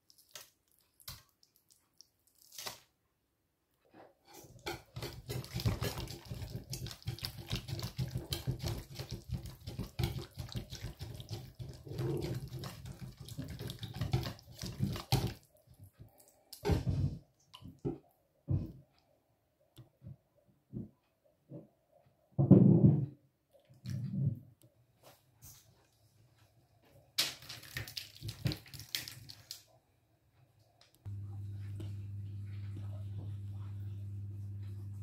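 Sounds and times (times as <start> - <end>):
whisk swishing batter: 4.3 - 15.6.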